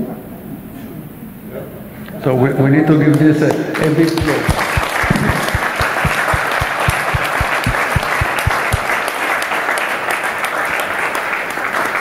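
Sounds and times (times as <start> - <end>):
nearby hands clapping: 3.8 - 10.8
audience applauding: 3.8 - 12.0.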